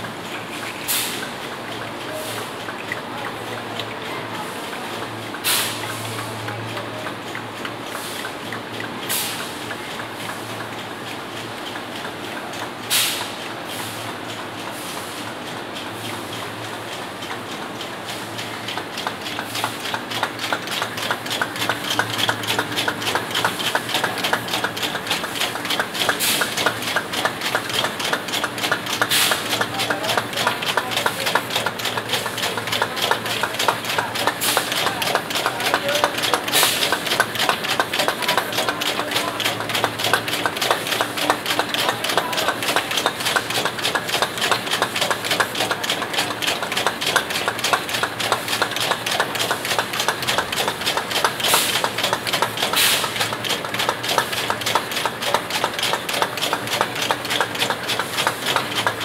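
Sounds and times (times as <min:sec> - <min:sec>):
steady machine hum: 0:01.2 - 0:59.0
bottle-cap machine clatter: 0:18.4 - 0:59.0.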